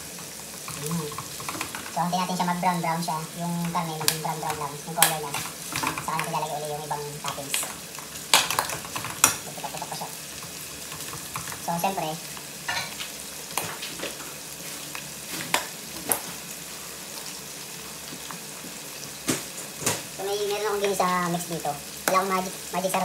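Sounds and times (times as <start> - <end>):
spatula stirring against pot: 0.0 - 16.4
meat sizzling in a pot: 0.0 - 23.0
sharp clicks and pops: 7.2 - 9.8.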